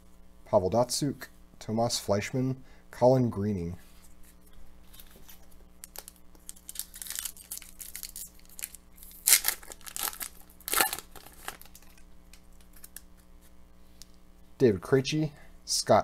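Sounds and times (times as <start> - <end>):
wrapper tearing and crinkling: 4.9 - 13.2.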